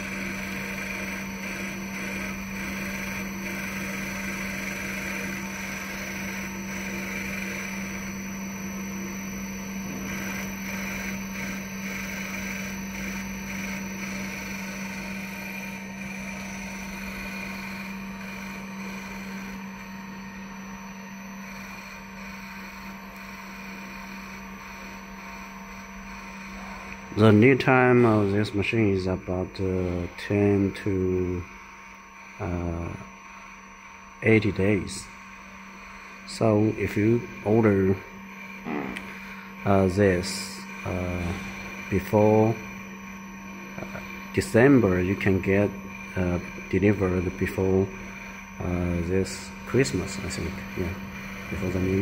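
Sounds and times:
milling machine spindle humming: 0.0 - 52.0.

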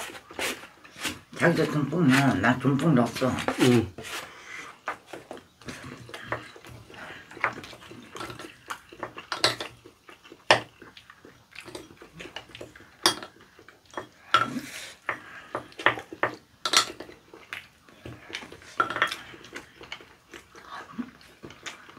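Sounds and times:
utensils clinking on ceramic bowls: 7.4 - 9.8, 11.6 - 17.2, 18.7 - 20.1.

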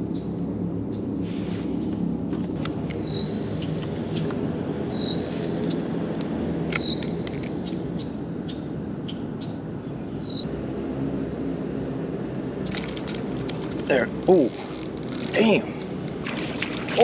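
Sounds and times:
steady low rumble: 0.0 - 14.3.

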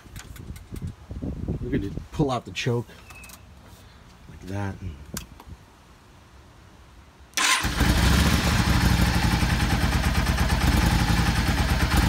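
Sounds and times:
motorcycle engine starting and idling: 7.3 - 12.0.

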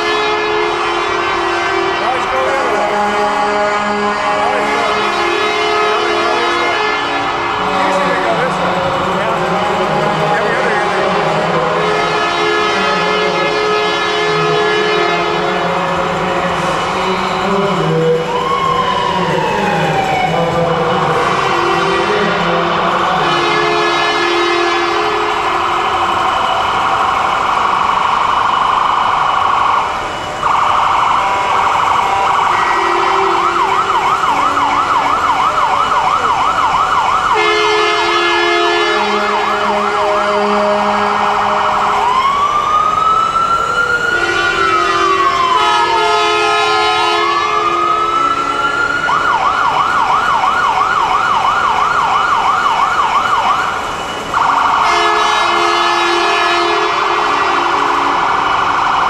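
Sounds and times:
truck air horn blasts: 0.0 - 18.6, 20.8 - 26.5, 31.2 - 34.7, 37.3 - 42.2, 44.1 - 48.6, 54.4 - 58.5
electronic siren yelp and wail: 0.0 - 59.0.

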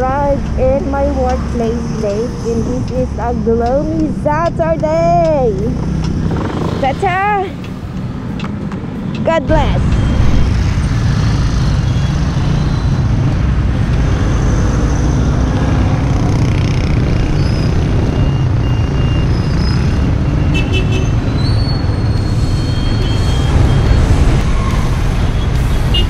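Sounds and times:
surrounding motorcycles: 0.0 - 14.3
scooter engine: 5.4 - 7.6.

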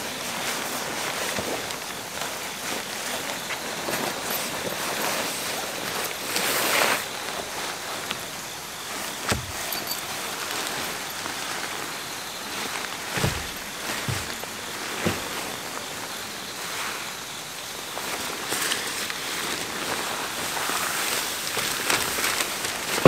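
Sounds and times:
nylon fabric rustling: 0.3 - 17.1, 18.2 - 23.0
plastic wrapping crinkling: 0.6 - 16.2, 18.2 - 23.0
dull thumps: 9.2 - 10.1, 12.9 - 15.8.

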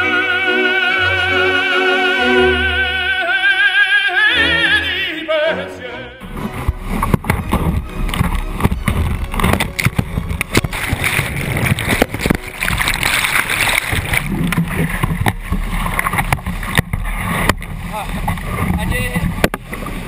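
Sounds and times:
paddle and hull knocks: 6.2 - 20.0
whitewater crashing: 6.2 - 20.0.

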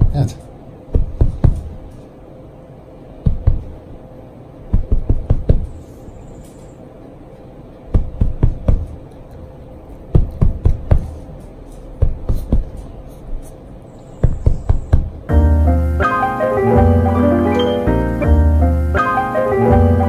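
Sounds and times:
hand patting a mattress: 0.9 - 1.8, 3.2 - 3.8, 4.7 - 5.8, 7.9 - 9.0, 10.1 - 11.2, 12.0 - 13.4, 14.2 - 15.2.

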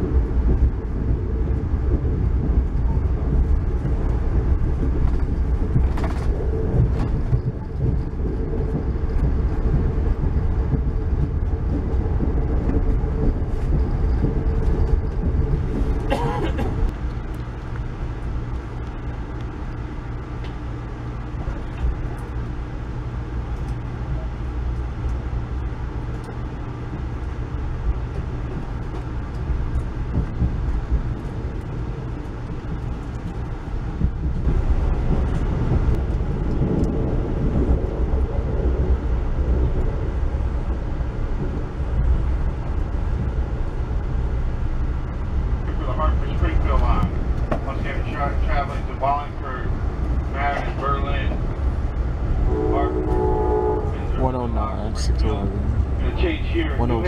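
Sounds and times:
train wheels rumbling on rails: 0.0 - 57.0.

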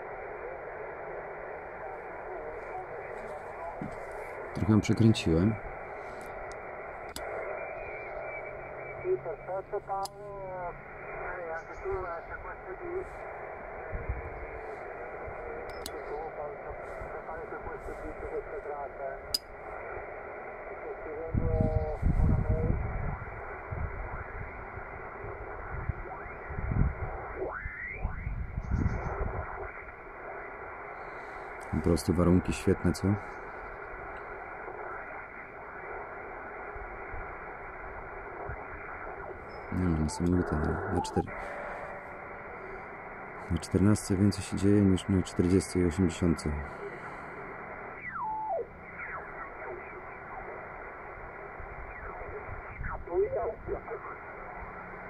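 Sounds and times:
radio band noise hiss: 0.0 - 55.0
radio whistles sliding down: 46.7 - 53.0.

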